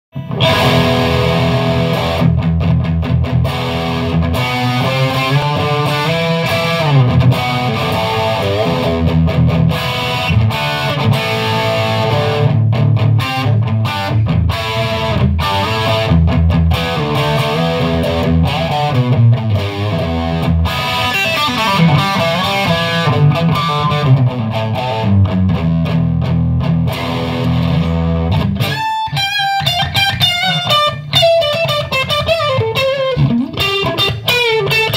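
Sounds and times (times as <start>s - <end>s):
electric guitar riffs and chords: 0.1s - 34.9s.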